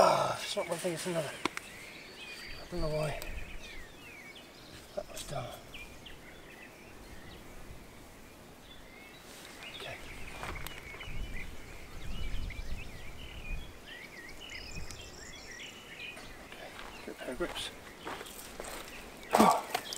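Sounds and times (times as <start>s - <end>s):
small birds chirping: 0.0s - 19.9s
footsteps on sandy ground: 9.2s - 11.4s, 16.0s - 19.9s.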